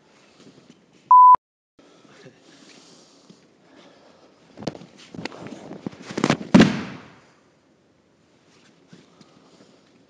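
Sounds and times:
short beep: 1.1 - 1.4
rustling and shuffling: 2.6 - 6.6, 8.3 - 10.0.

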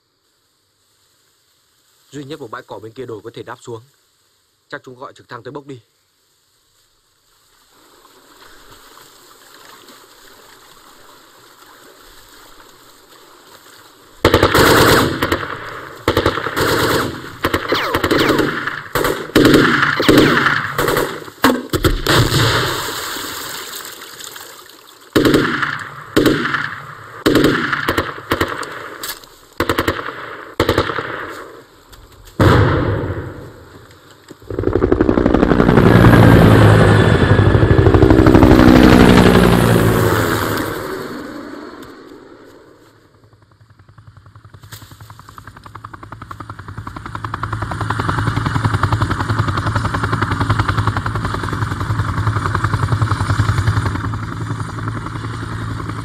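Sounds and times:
outdoor background: 0.0 - 56.0
automatic rifle fire: 14.2 - 22.9, 25.2 - 29.0, 29.6 - 31.7
helicopter rotor: 34.4 - 42.3, 43.0 - 56.0.

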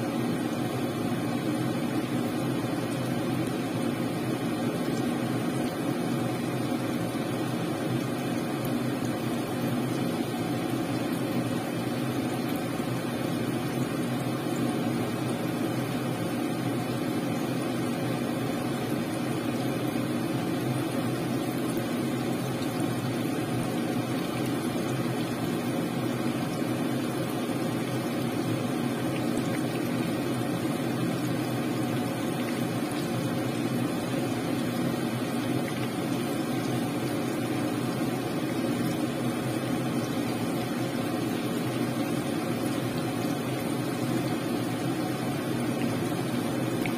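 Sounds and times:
chicken deep-frying in oil: 0.0 - 46.9
steady low hum: 0.0 - 46.9.

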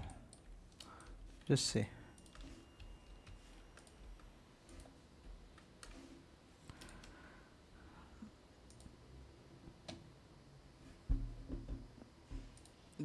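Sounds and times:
faint computer mouse clicks: 8.7 - 8.9.

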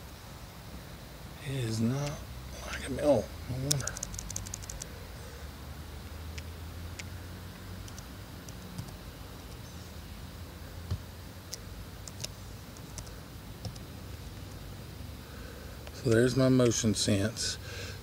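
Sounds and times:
low background hum: 0.0 - 18.0
keyboard keys clicking: 3.6 - 4.9, 11.5 - 13.8.

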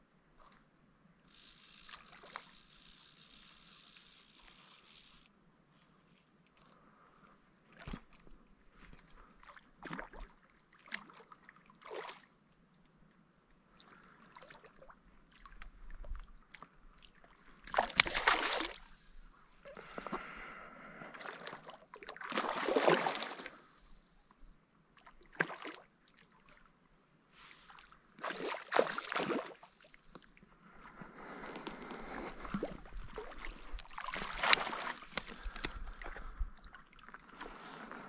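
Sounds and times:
small clicks: 1.3 - 6.8
water sloshing and splashing: 7.7 - 12.3, 14.0 - 18.9, 21.2 - 23.8, 25.0 - 26.7, 27.7 - 30.2, 32.0 - 38.0.

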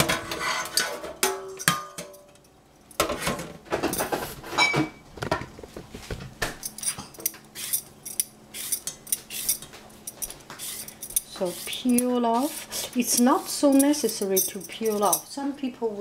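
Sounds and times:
peeler scraping cucumber: 7.6 - 7.9, 8.5 - 9.7, 10.5 - 14.2.

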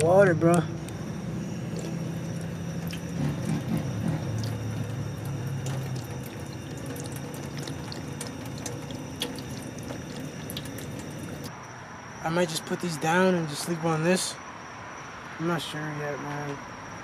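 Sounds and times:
water running: 1.7 - 11.5.

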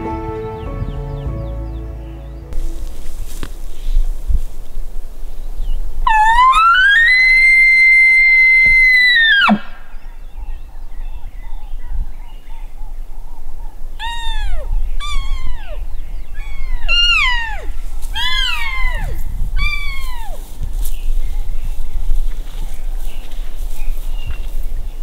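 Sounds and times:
elk bugle call whistle: 6.1 - 9.8.

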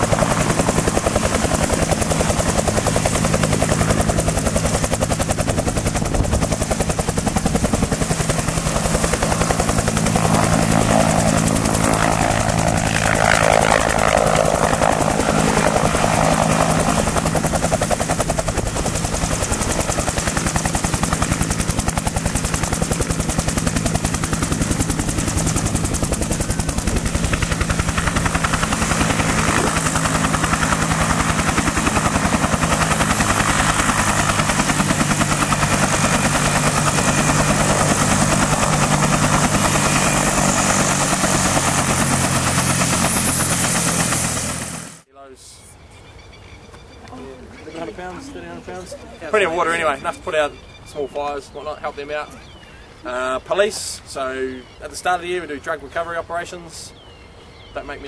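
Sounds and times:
helicopter rotor beating: 0.0 - 45.1, 47.5 - 52.3.

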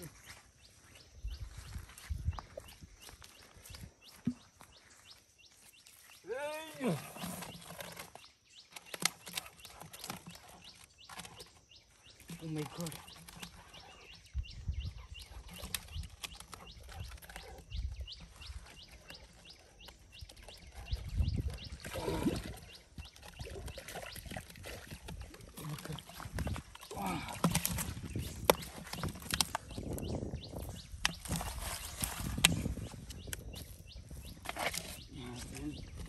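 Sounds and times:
fish flapping against plastic: 20.2 - 33.5.

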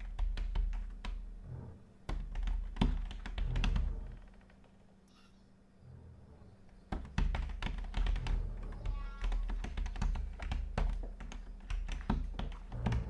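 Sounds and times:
laptop keyboard typing: 0.0 - 1.2, 2.1 - 4.2, 6.9 - 13.0.

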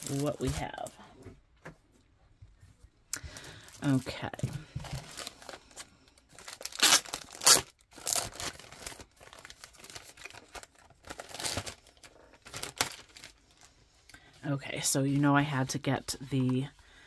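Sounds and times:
plastic bag crinkling: 0.0 - 0.9, 3.3 - 13.7.

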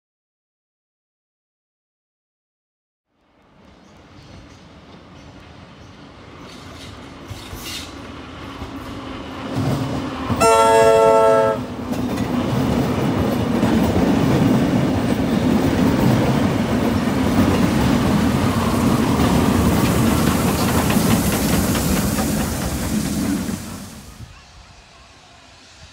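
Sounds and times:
train wheels rumbling and clattering: 3.5 - 24.4
train whistle: 10.4 - 11.8.

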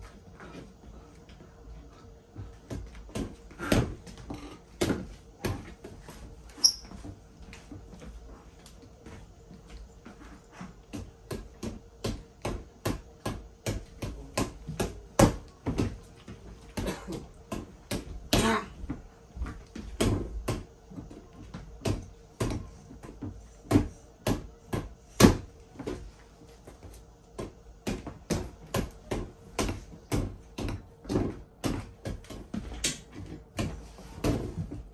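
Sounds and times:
punches thudding on punching ball: 10.9 - 16.0, 23.6 - 25.9.

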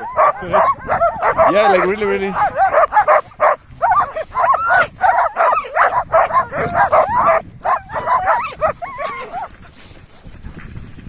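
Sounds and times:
sled dogs yipping and whining: 0.0 - 10.6.

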